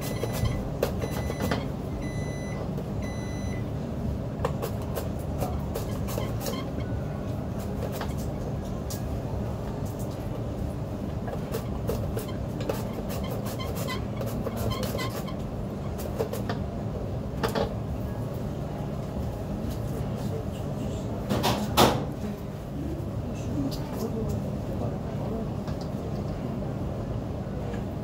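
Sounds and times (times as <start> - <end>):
low machine hum: 0.0 - 21.2.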